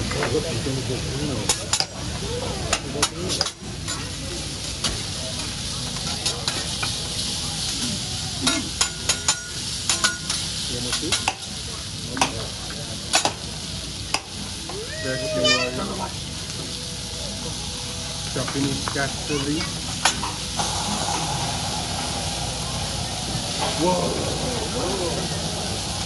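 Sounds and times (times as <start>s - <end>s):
vegetables sizzling on a griddle: 0.0s - 26.0s
metal spatulas clacking on griddle: 2.7s - 4.1s, 6.0s - 6.7s, 8.4s - 11.5s, 13.1s - 13.4s.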